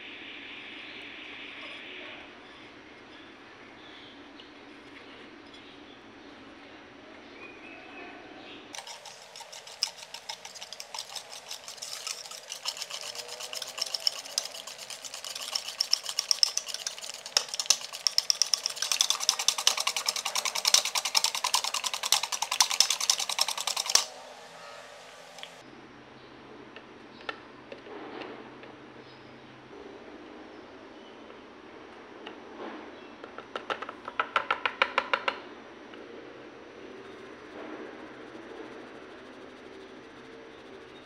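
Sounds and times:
whisk beating batter in bowl: 0:08.8 - 0:25.6.

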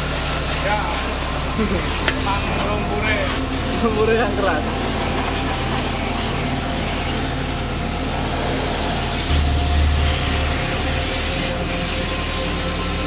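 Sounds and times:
pressure washer motor humming: 0:00.0 - 0:13.0
water jet hissing on metal: 0:00.0 - 0:13.0
low rumble: 0:08.4 - 0:13.0.

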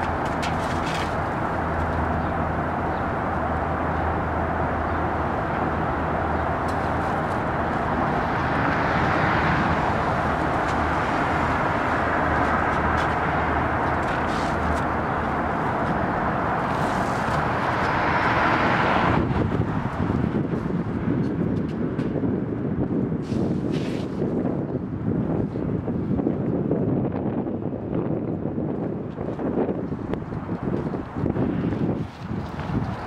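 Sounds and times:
distant traffic: 0:00.0 - 0:24.1.

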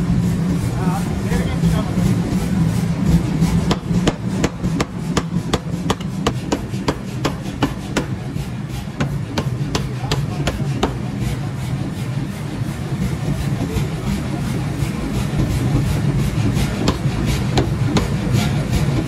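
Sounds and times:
power hammer machine hum: 0:00.0 - 0:19.0
power hammer sharp strikes: 0:03.6 - 0:11.1, 0:15.4 - 0:18.5.

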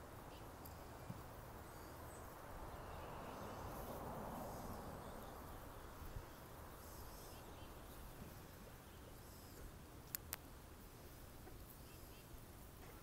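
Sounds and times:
soft rushing noise: 0:00.6 - 0:09.8
faint high bird chirps: 0:05.0 - 0:09.7
small clicks: 0:10.0 - 0:10.4.

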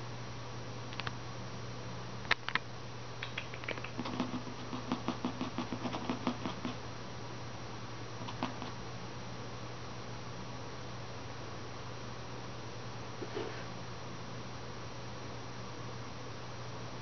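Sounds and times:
kitten paws clicking on wooden floor: 0:03.2 - 0:06.8, 0:08.2 - 0:08.8.

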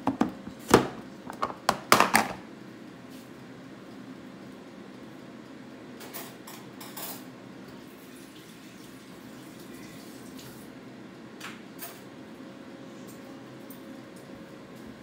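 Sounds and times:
low background hum: 0:00.0 - 0:15.0
utensils clinking against dishes: 0:06.0 - 0:07.3.

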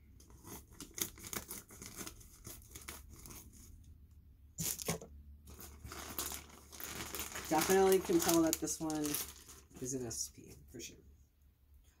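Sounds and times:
plastic bag crinkling and tearing: 0:04.6 - 0:10.2.

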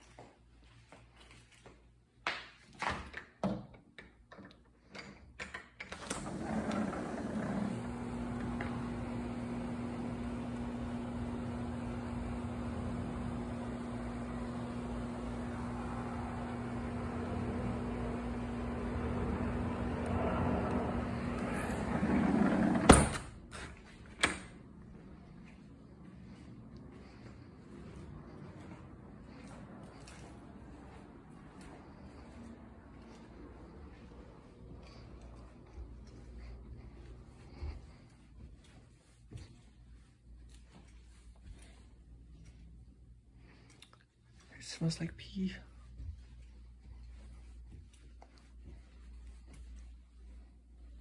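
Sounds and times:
air conditioner unit humming: 0:04.6 - 0:51.0
door banging shut: 0:22.6 - 0:23.4.

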